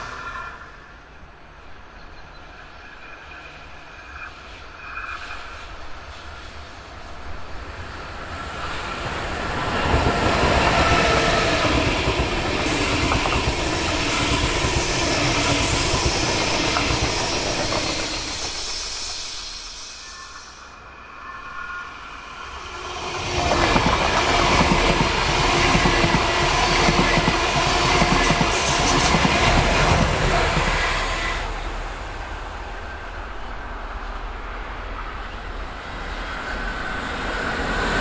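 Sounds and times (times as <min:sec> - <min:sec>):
train wheels rumbling on rails: 0:00.0 - 0:38.0
high hiss of passing coaches: 0:12.6 - 0:21.1.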